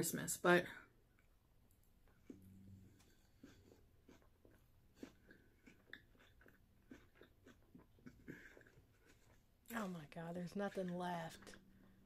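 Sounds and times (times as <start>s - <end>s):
person chewing with mouth clicks: 2.0s - 9.8s.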